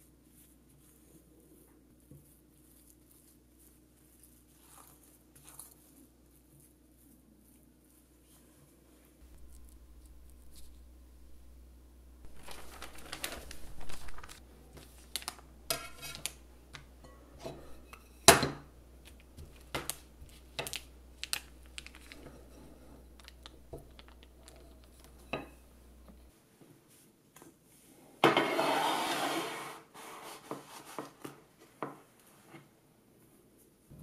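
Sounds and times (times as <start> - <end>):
low steady hum: 0.0 - 27.9
plastic wrap rustling: 12.2 - 16.9, 19.0 - 25.2.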